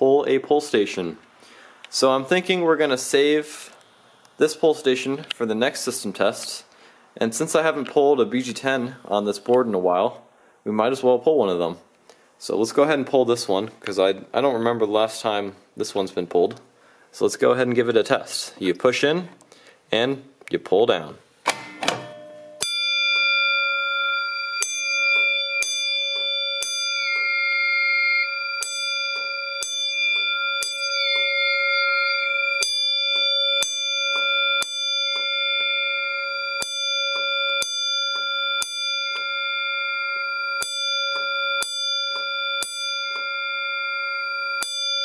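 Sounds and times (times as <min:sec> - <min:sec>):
fire alarm gong bell ringing: 0:21.7 - 0:45.0.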